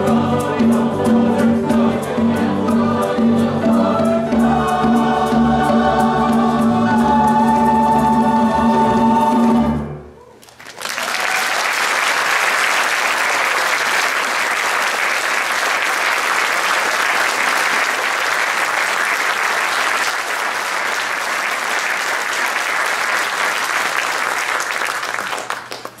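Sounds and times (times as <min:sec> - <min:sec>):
audience applauding: 0:10.4 - 0:26.0.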